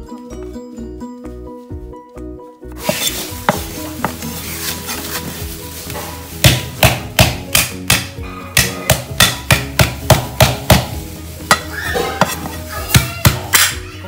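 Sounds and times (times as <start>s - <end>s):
cleaver chopping on wooden board: 6.4s - 10.9s.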